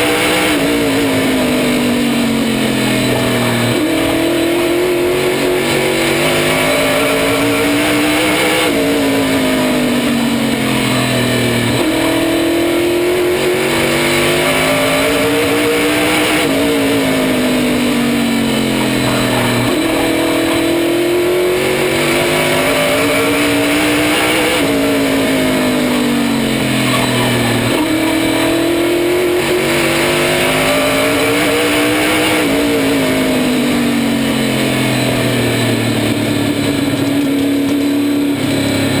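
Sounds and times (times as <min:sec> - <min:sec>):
race car engine revving: 0:00.0 - 0:39.0.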